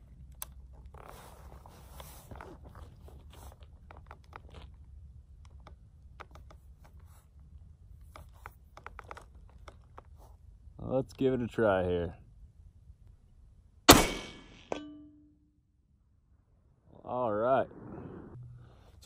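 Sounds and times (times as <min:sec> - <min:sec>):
rifle handling clicks and scrapes: 0:00.4 - 0:04.6
low steady rumble: 0:10.2 - 0:19.0.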